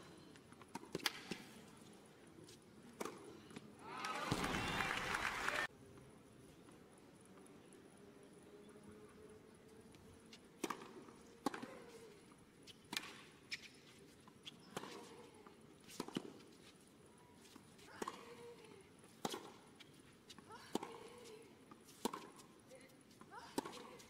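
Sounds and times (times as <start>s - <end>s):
tennis ball hit by racquet: 10.6s - 11.8s, 12.9s - 13.2s, 19.2s - 19.6s, 21.9s - 22.4s.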